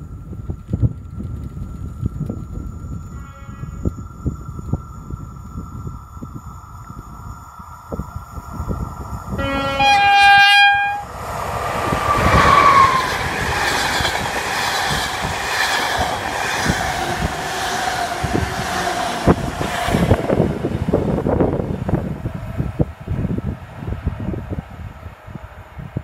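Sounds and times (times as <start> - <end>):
train passing with rumble: 0.0 - 26.0
locomotive horn blast: 9.3 - 11.2, 12.1 - 13.2.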